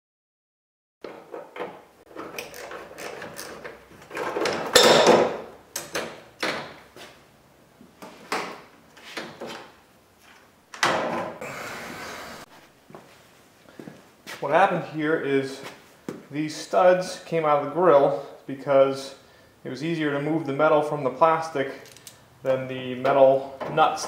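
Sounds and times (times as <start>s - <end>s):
clicking and knocking of fasteners: 1.0s - 6.8s.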